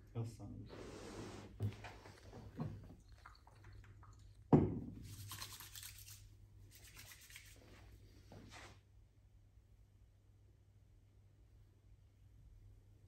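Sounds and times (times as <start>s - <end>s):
hissing rubbing: 0.7s - 3.2s
bottle knock: 4.5s - 5.0s.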